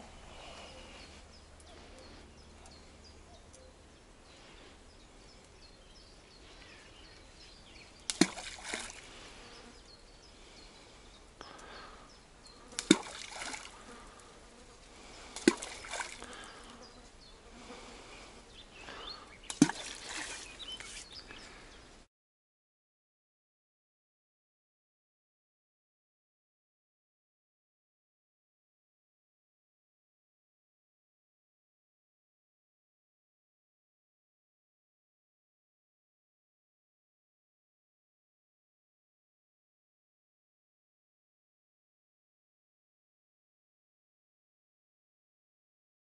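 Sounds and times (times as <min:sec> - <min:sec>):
balls plopping into water: 0:08.0 - 0:09.1, 0:12.8 - 0:13.8, 0:15.4 - 0:16.4, 0:19.5 - 0:20.9.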